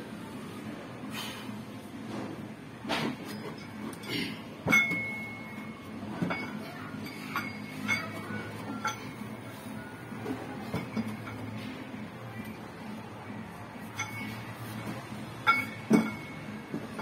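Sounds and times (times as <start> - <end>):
metal dumbbell plates clinking: 6.2 - 9.3, 13.9 - 14.5, 15.4 - 17.0.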